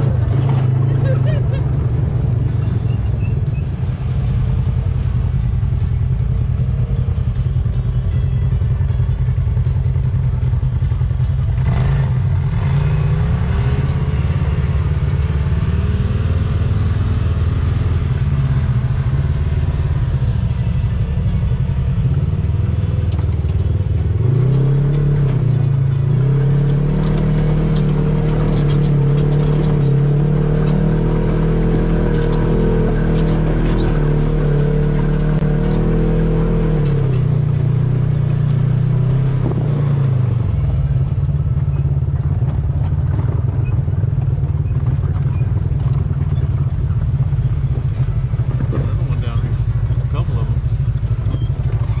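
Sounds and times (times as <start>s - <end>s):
off-road vehicle engine running: 0.0s - 52.0s.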